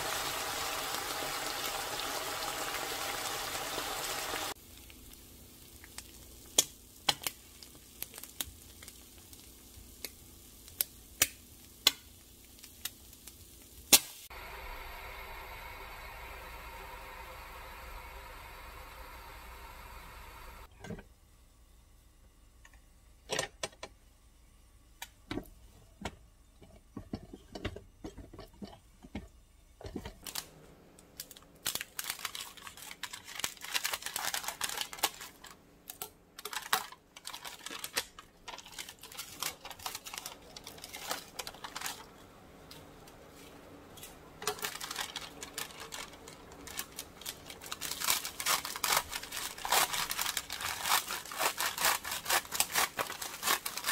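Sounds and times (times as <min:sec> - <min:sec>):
plastic bag crinkling: 0:30.2 - 0:53.9
scissors cutting plastic: 0:31.2 - 0:42.1, 0:44.0 - 0:53.9.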